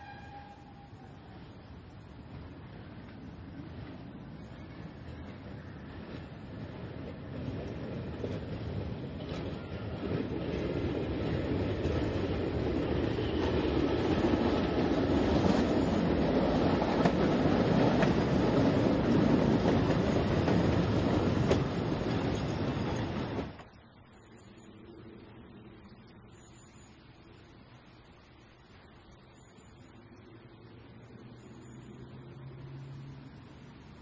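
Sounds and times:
diesel railcar approaching: 0.0s - 34.0s
faint outdoor ambience: 0.0s - 34.0s
wheels clicking on rails: 2.3s - 23.8s.

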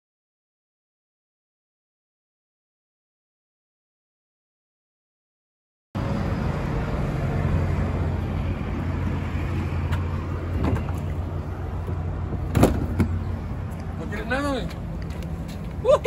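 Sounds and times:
road noise: 6.0s - 16.0s
vehicle engine rumble: 6.0s - 16.0s.

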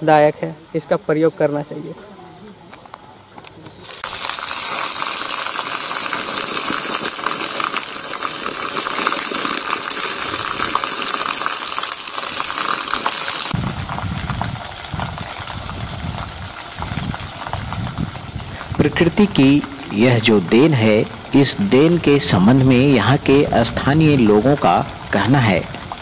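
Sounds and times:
water splashing into a pool: 3.8s - 18.3s
water gushing from a pipe: 3.8s - 26.0s.

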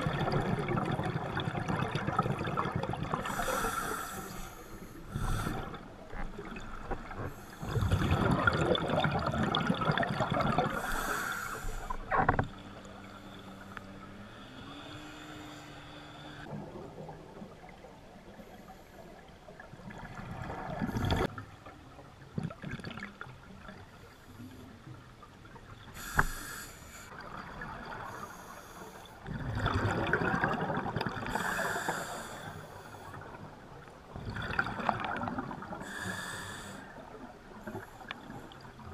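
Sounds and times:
exhaled bubbles underwater: 0.0s - 4.0s, 5.1s - 12.4s, 19.2s - 21.4s, 22.3s - 23.8s, 29.2s - 32.3s, 33.1s - 36.3s
diver inhaling through regulator: 3.2s - 5.9s, 10.7s - 12.1s, 26.0s - 27.2s, 31.3s - 33.3s, 35.8s - 37.0s.

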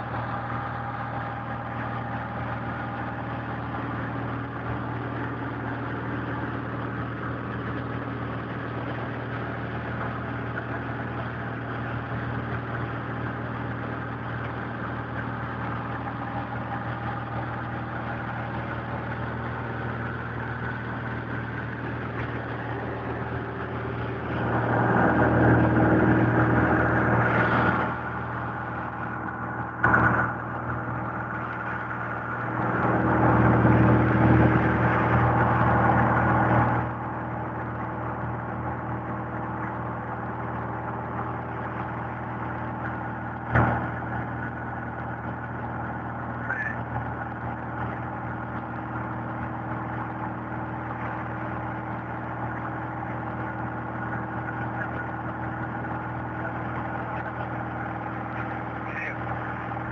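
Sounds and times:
light aircraft engine droning: 0.0s - 59.9s
rush of noise: 15.9s - 59.9s.

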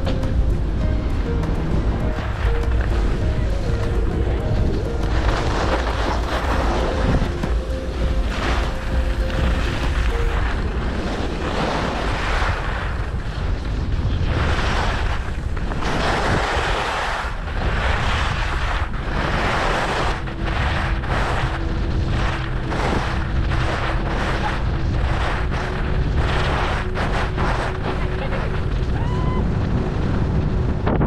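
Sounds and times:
skis scraping on snow: 0.0s - 31.0s
wind buffeting microphone: 0.0s - 31.0s.

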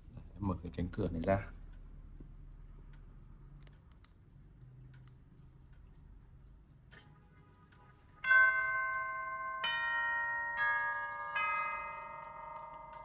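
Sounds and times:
faint clicks: 1.7s - 6.2s
grandfather clock chiming: 8.2s - 13.0s.

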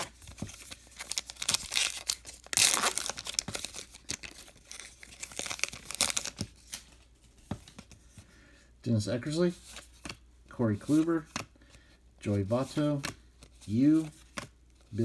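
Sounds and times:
wrapper tearing and crinkling: 0.9s - 6.4s.

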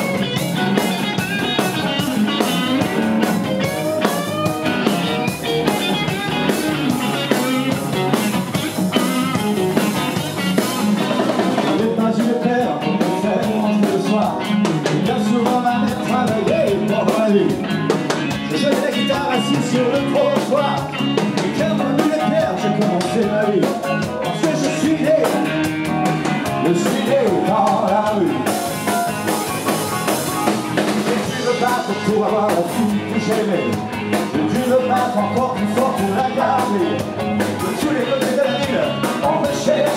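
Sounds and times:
drum kit: 0.0s - 39.9s
electric guitar: 0.0s - 39.9s
man singing: 11.4s - 25.7s, 26.4s - 28.9s, 30.9s - 39.9s.

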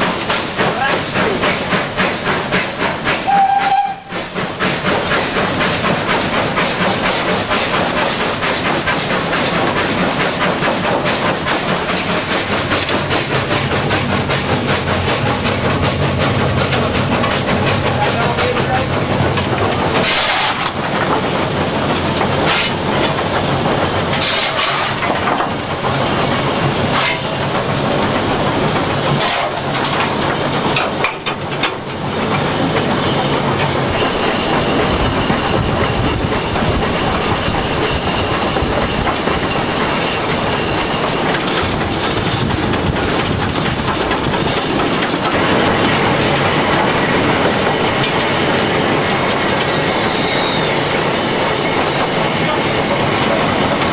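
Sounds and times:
steam hiss: 0.0s - 18.0s, 31.8s - 53.8s
steam locomotive exhaust: 0.0s - 53.9s
wheels clattering on rail joints: 0.0s - 53.9s.

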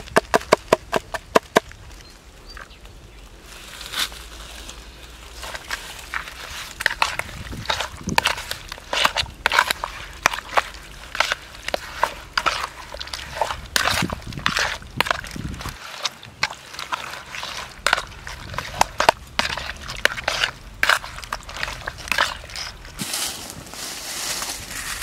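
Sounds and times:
wet squelching of meat by hand: 5.3s - 23.0s.

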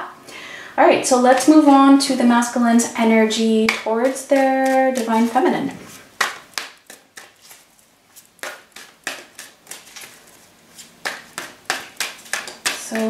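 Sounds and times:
cards being shuffled: 3.7s - 13.0s.

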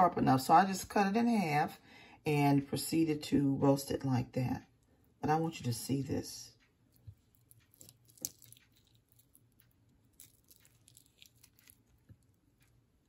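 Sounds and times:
fork scraping squash flesh: 10.2s - 12.1s.

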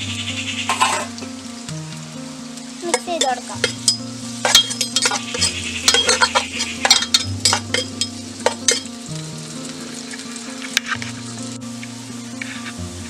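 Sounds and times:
onions sizzling in hot oil: 0.0s - 13.0s
metal ladle scraping a pot: 0.7s - 1.2s, 2.9s - 8.9s.

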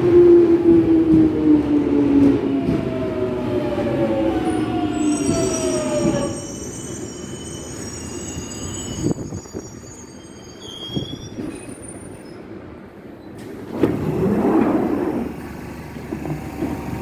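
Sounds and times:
brake squeal: 4.9s - 12.5s.

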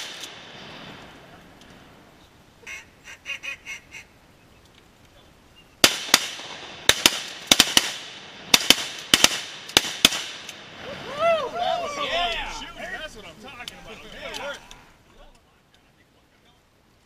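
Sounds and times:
shotgun blasts: 0.0s - 0.6s, 5.8s - 10.7s
ducks quacking: 2.6s - 4.2s.

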